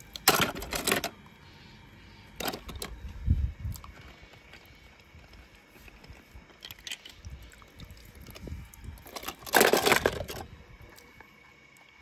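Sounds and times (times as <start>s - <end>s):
toy vehicles clicking in plastic bucket: 0.0s - 1.1s, 5.9s - 7.3s, 9.0s - 10.5s
toys clattering: 0.2s - 1.1s, 9.1s - 10.4s.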